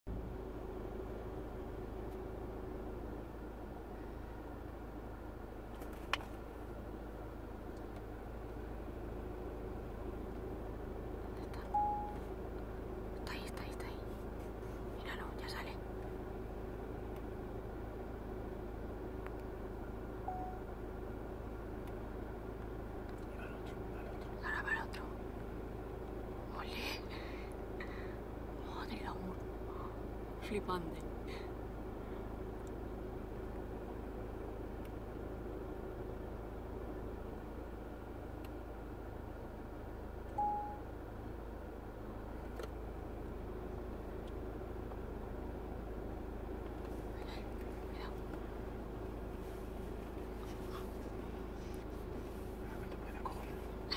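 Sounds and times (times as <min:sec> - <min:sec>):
faint hum: 0:00.1 - 0:53.9
low background rumble: 0:00.1 - 0:53.9
short high tone: 0:20.3 - 0:20.7, 0:40.4 - 0:40.9.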